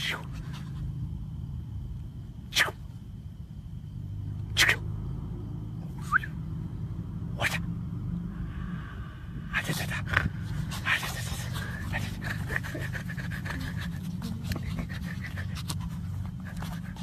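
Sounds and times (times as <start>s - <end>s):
dog panting: 9.6s - 17.0s.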